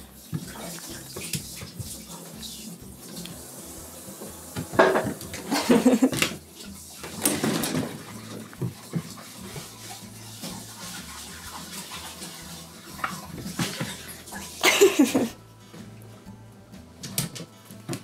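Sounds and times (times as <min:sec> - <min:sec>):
dishes and cutlery clattering: 0:04.6 - 0:06.4, 0:07.0 - 0:09.2, 0:13.0 - 0:15.3.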